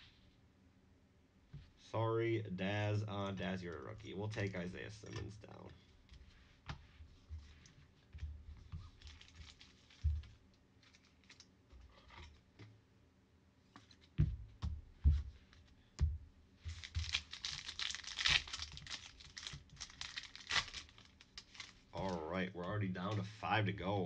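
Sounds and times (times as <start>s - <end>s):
foil wrapper crinkling and tearing: 8.8s - 12.4s, 16.7s - 22.2s.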